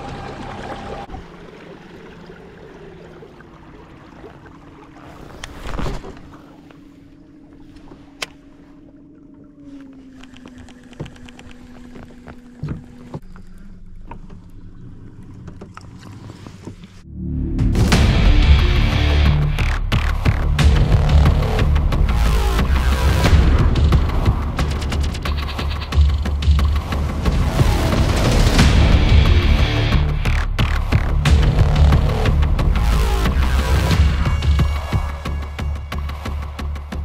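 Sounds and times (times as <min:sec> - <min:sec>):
water moving along hull: 0:00.0 - 0:17.1
loud music: 0:17.2 - 0:35.8.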